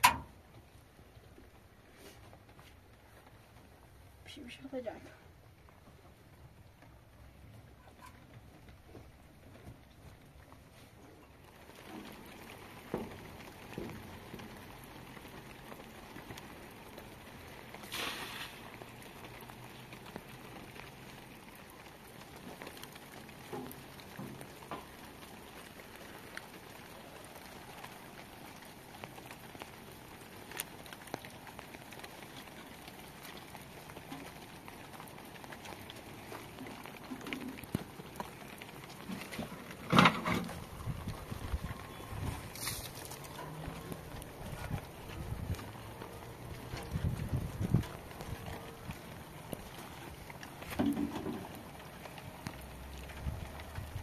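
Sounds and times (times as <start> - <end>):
light rain hissing: 0.0 - 54.0
knocks and rustles: 36.3 - 51.8.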